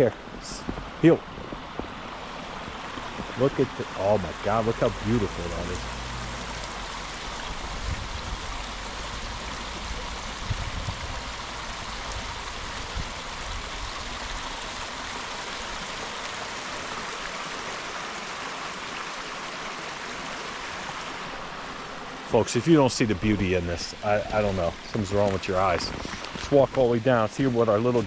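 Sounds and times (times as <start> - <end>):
creek babbling over rocks: 0.0 - 28.0.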